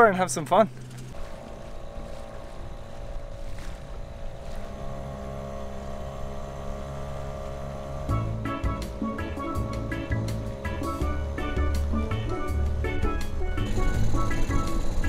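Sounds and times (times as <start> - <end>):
small outboard motor running: 0.0 - 15.0
wind and water rushing: 1.1 - 7.9
music: 7.6 - 15.0.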